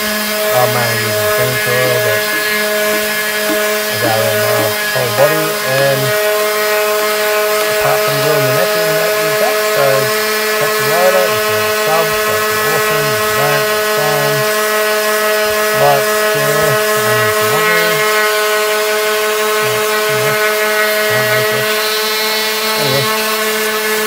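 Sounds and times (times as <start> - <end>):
electric hum: 0.0 - 23.7
wavering pitched sounds: 0.4 - 6.4, 7.8 - 14.6, 15.4 - 18.4, 19.4 - 23.2
sandpaper rubbing on wood: 7.9 - 14.4.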